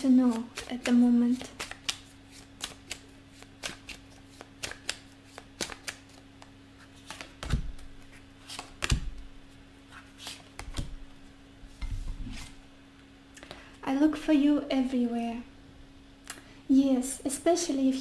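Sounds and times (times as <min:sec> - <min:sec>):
cards snapping while shuffled: 0:00.3 - 0:09.2, 0:09.9 - 0:11.0.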